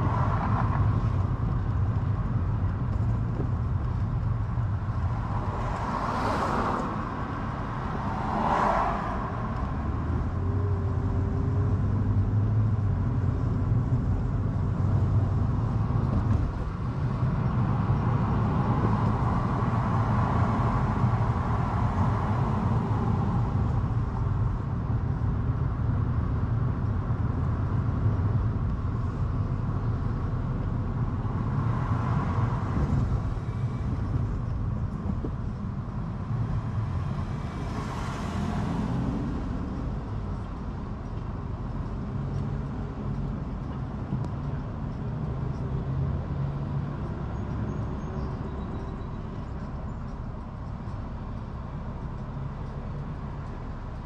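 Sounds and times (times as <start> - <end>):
car tyres and engine rumbling: 0.0 - 54.0
vehicle passing: 35.0 - 40.7.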